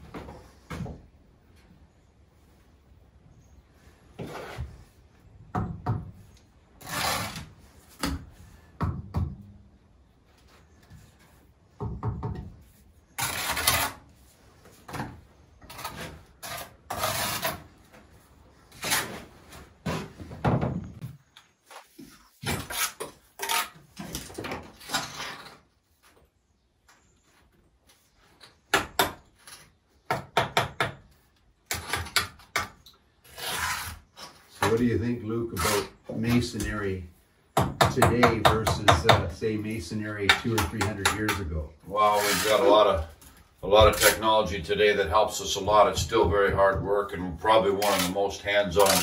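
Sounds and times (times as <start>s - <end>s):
bricks rubbed into place: 6.8s - 7.6s, 15.7s - 17.7s
trowel scraping mortar: 6.8s - 7.9s, 13.1s - 14.2s, 15.6s - 17.7s, 18.7s - 19.3s, 22.4s - 23.9s, 33.2s - 34.9s, 35.5s - 36.4s, 41.9s - 43.2s, 47.6s - 49.0s.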